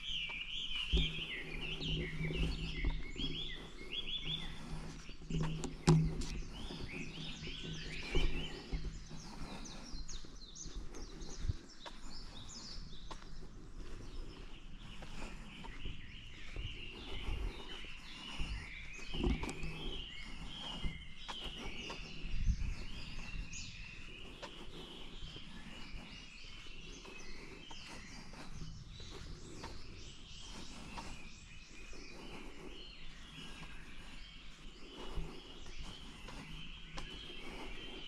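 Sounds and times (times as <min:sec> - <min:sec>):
small birds chirping: 0:00.0 - 0:38.0
low thumps and knocks: 0:05.3 - 0:09.2.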